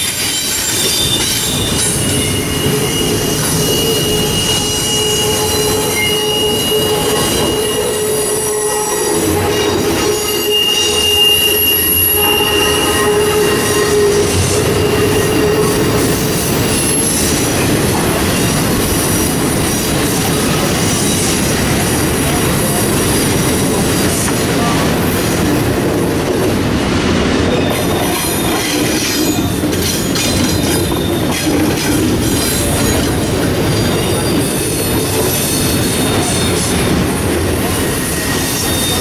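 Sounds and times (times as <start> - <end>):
wheel squeal: 0.0 - 17.7, 38.0 - 39.0
train wheels rumbling on rail: 0.0 - 39.0.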